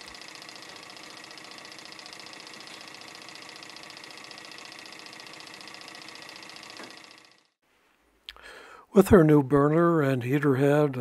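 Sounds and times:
hot-air engine ticking: 0.0s - 7.6s.

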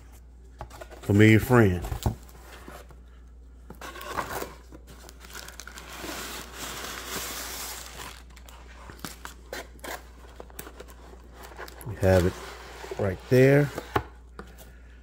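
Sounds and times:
cardboard rustling: 3.7s - 14.1s
plastic wrap crinkling: 3.8s - 9.8s.

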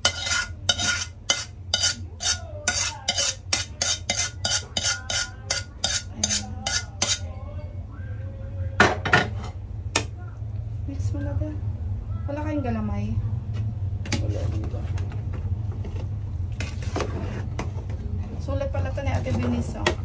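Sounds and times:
metal spoon scraping a pan: 0.0s - 7.3s
steady low hum: 0.0s - 20.0s.

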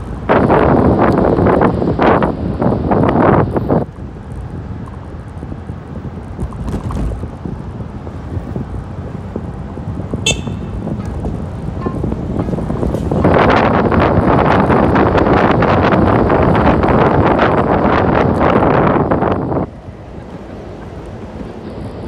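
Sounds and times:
street traffic rumble: 0.0s - 22.0s
wind buffeting microphone: 0.0s - 22.0s
short high horn toot: 10.2s - 11.1s.

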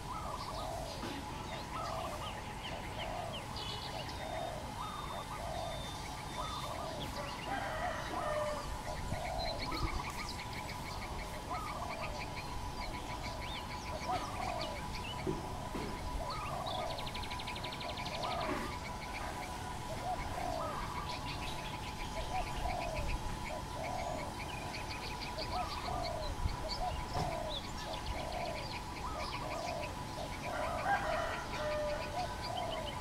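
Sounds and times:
dove cooing: 0.0s - 33.0s
small birds chirping: 0.0s - 33.0s.

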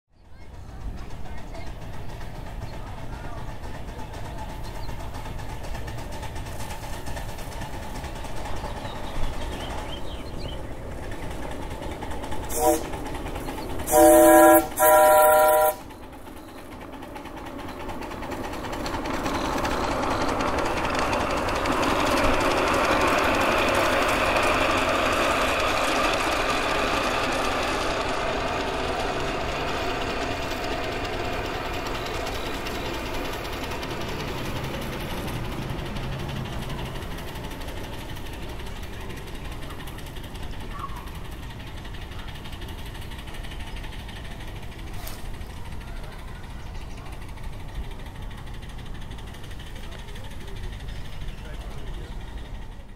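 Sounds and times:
miniature train running on rails: 0.1s - 52.9s
steam locomotive whistle: 12.5s - 13.0s, 13.8s - 15.9s.

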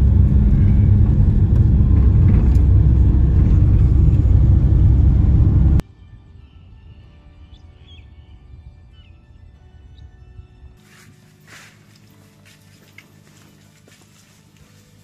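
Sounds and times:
van driving rumble: 0.0s - 5.8s.

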